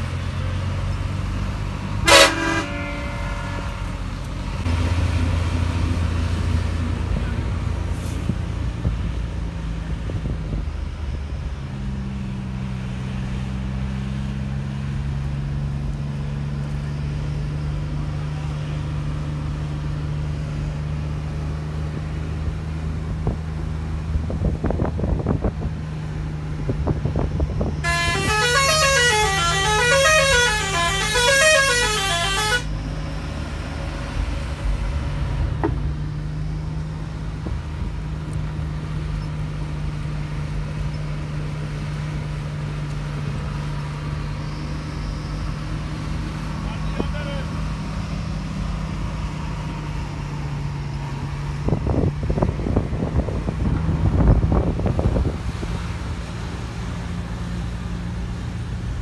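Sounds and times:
bus engine running: 0.0 - 59.0
multi-tone musical horn: 2.0 - 4.1, 27.8 - 32.8.

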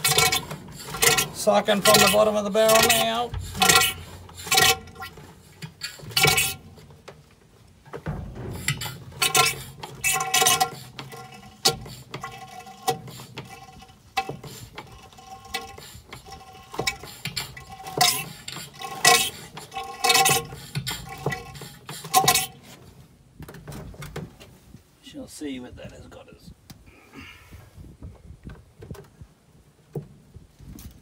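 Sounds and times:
hand pump sucking and gurgling: 0.0 - 7.1, 8.1 - 22.8.

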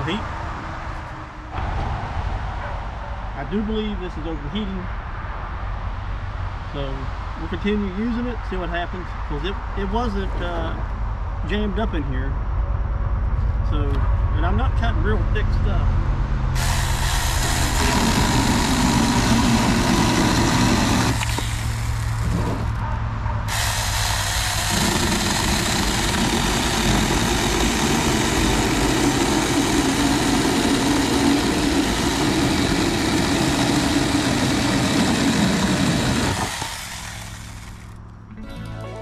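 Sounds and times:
chain cutting wood: 16.6 - 22.8, 23.5 - 38.1
chainsaw motor whine: 16.6 - 22.8, 23.5 - 38.0.

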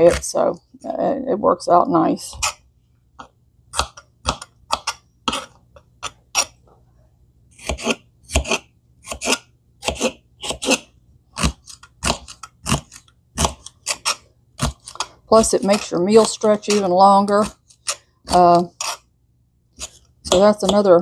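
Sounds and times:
knife chopping on cutting board: 7.6 - 19.0.

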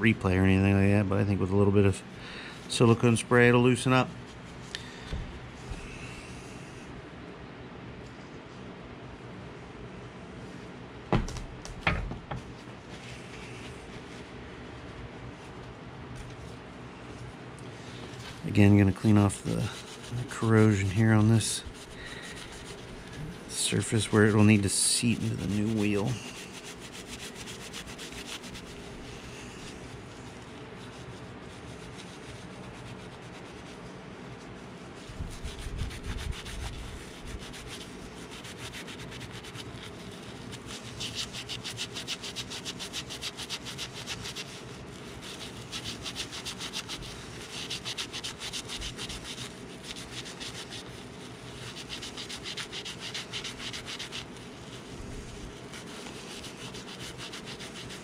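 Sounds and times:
scrubbing metal with abrasive: 18.4 - 29.8.

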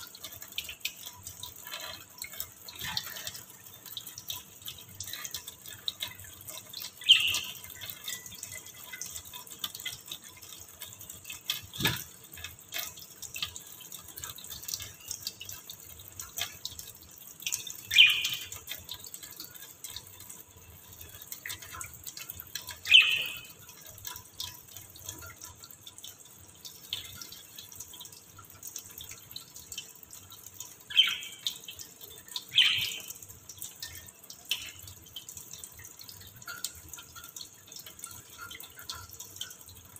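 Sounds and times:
tap water running into sink: 0.0 - 39.9
budgerigar chirping: 7.1 - 7.6, 17.9 - 18.4, 22.9 - 23.4, 30.9 - 31.4, 32.6 - 33.1.

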